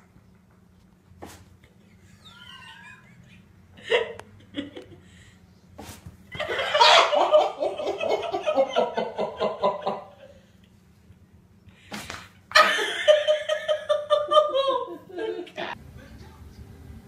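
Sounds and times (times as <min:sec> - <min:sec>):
person laughing: 0:01.7 - 0:05.1, 0:06.4 - 0:10.3, 0:12.5 - 0:15.8.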